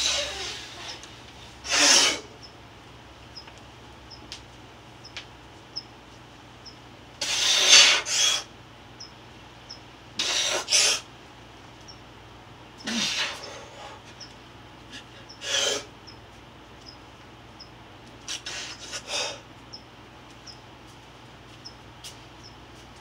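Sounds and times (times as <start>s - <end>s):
man breathing forcefully: 1.6s - 2.3s, 7.2s - 8.5s, 10.2s - 11.0s, 14.9s - 15.9s, 18.3s - 19.5s.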